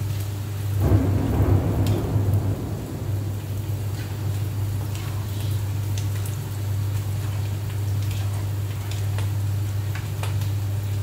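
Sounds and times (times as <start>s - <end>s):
steady low hum: 0.7s - 7.8s.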